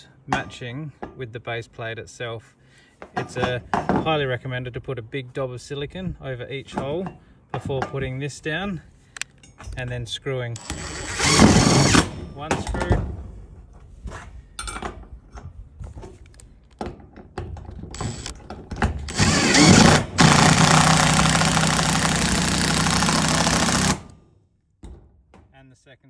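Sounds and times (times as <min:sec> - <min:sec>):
cordless driver driving screw: 0:10.6 - 0:12.2, 0:17.9 - 0:18.4, 0:19.1 - 0:24.2.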